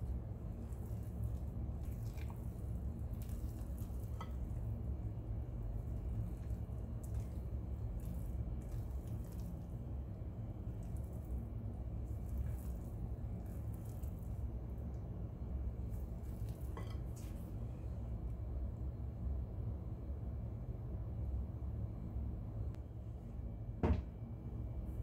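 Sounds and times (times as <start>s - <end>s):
spatula stirring thick batter: 0.0s - 17.6s
steady low hum: 0.0s - 25.0s.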